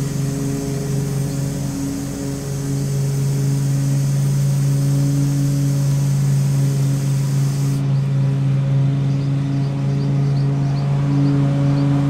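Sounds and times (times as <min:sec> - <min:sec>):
aerosol spray hissing: 0:00.0 - 0:07.8
steady low hum: 0:00.0 - 0:12.0.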